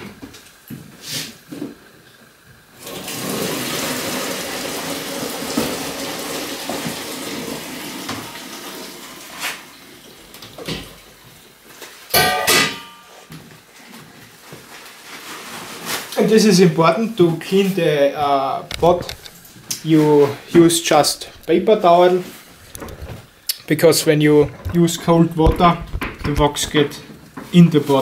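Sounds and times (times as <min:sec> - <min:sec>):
water splashing into sink: 0:02.8 - 0:09.7.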